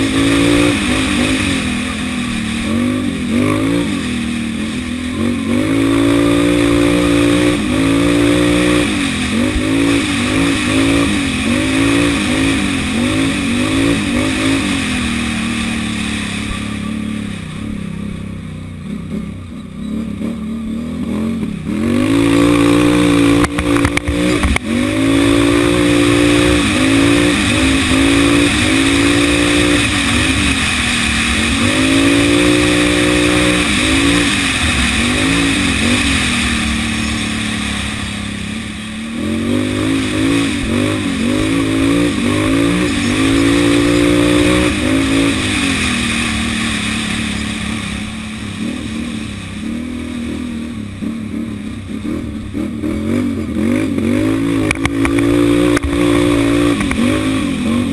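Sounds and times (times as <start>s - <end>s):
quad engine revving: 0.0s - 57.9s
steady rushing noise: 0.0s - 57.9s.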